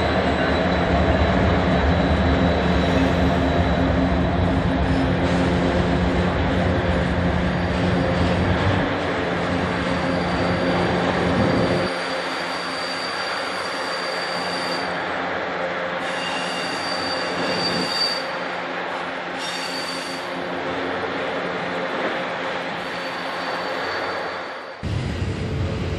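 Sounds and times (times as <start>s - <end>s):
high wheel squeal: 0.0s - 4.0s, 9.8s - 15.0s, 16.0s - 18.4s, 19.4s - 20.4s, 22.8s - 24.8s
train wheels rumbling on rail: 0.0s - 25.9s.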